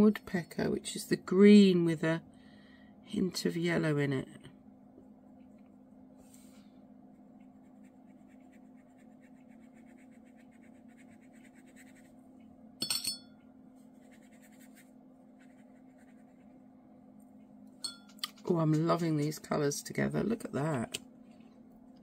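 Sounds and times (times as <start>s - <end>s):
steady low hum: 0.0s - 22.0s
brush scratching on paper: 7.1s - 12.2s, 14.0s - 16.5s
short ringing clink: 12.8s - 13.4s.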